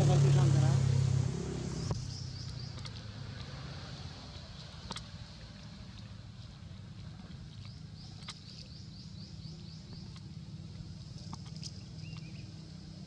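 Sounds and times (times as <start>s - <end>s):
steady low rumble: 0.0s - 13.0s
bird chirping: 11.8s - 12.6s.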